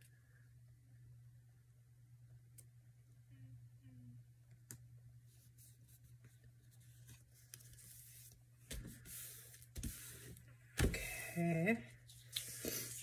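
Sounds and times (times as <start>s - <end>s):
low steady hum: 0.0s - 13.0s
paper rustling: 5.5s - 10.4s.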